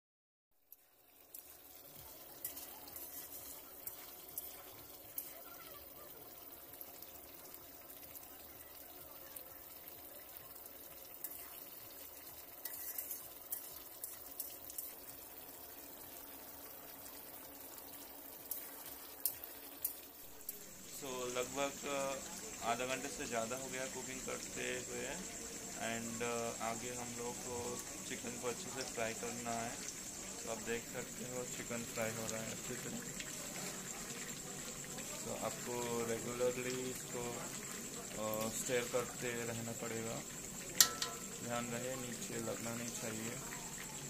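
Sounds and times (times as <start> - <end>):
chicken sizzling in wok: 0.6 - 44.0.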